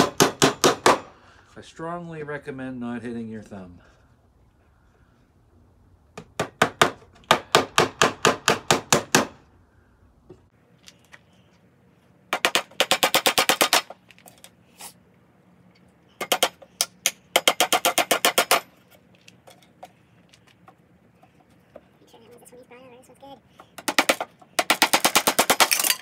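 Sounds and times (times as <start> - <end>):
hammer driving nails into wood: 0.0 - 1.1, 6.2 - 9.4, 12.3 - 14.0, 16.2 - 18.7, 23.8 - 25.9.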